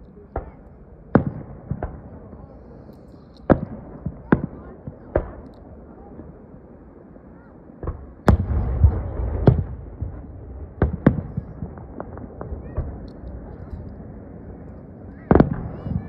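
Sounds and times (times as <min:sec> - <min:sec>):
low rumbling echoes: 0:00.0 - 0:16.0
small firework pops: 0:00.3 - 0:02.0, 0:03.4 - 0:05.7, 0:14.7 - 0:16.0.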